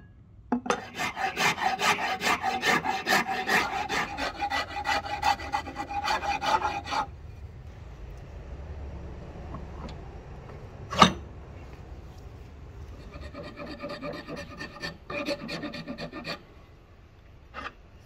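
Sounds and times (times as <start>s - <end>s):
hand rasp filing wood: 0.8s - 7.1s, 13.0s - 16.4s.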